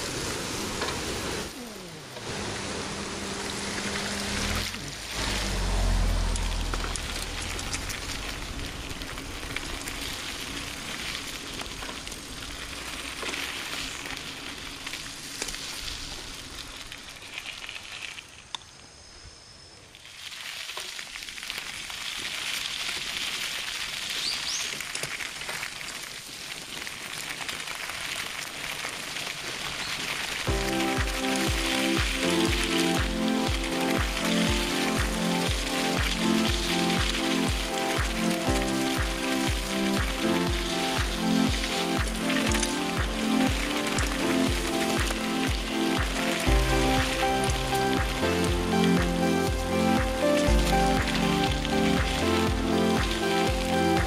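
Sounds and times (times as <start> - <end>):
bike tyre and wind noise: 0.0 - 54.0
low rumble: 2.9 - 13.0, 30.5 - 54.0.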